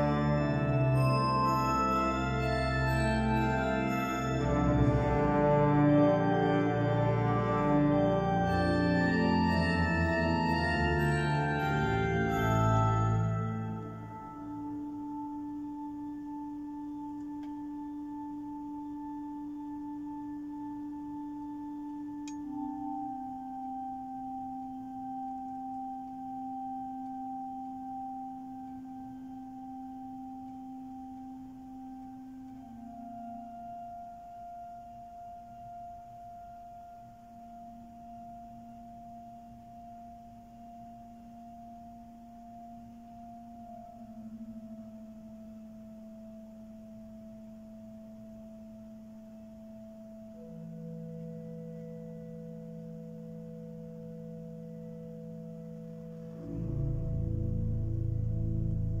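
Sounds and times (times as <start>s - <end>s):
pipe organ sustained notes: 0.0s - 59.0s
faint click: 22.2s - 22.5s.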